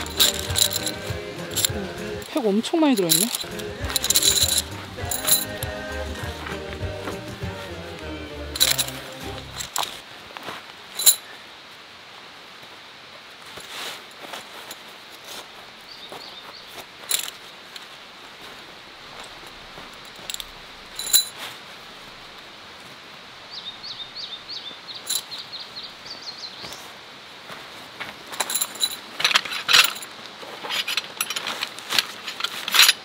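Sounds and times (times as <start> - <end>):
metal tent stakes clinking: 0.0 - 7.4, 8.5 - 10.0, 17.1 - 17.4, 20.0 - 21.4, 28.3 - 33.0
stream water rushing: 0.0 - 15.8
bird chirping: 23.5 - 26.8.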